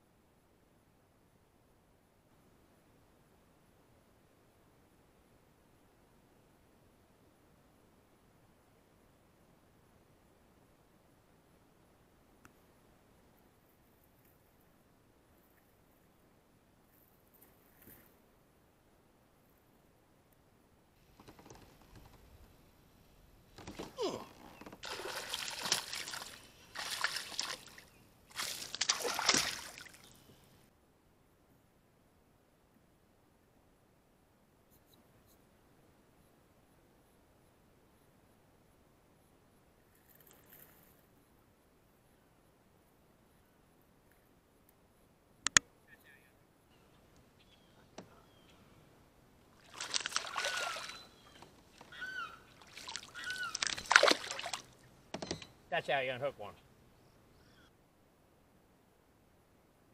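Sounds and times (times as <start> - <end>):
fish splashing at water surface: 24.8 - 30.2, 49.6 - 51.1, 52.5 - 54.8.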